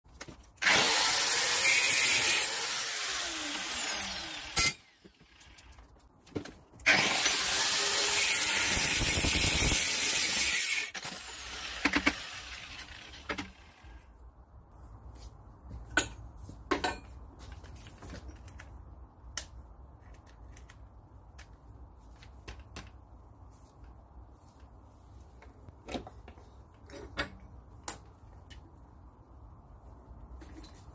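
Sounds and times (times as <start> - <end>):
angle grinder grinding: 0.6 - 4.9, 6.9 - 13.6
tools knocking and clinking: 15.8 - 17.2.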